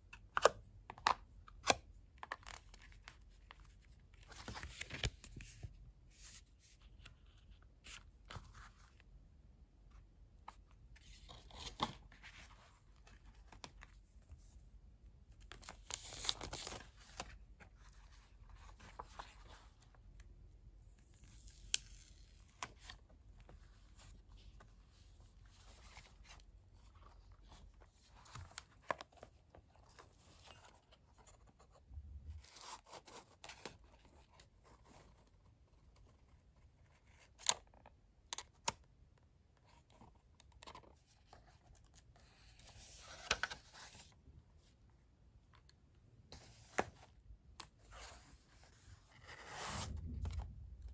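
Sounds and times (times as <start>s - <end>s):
paper rustling and crinkling: 2.2s - 9.0s.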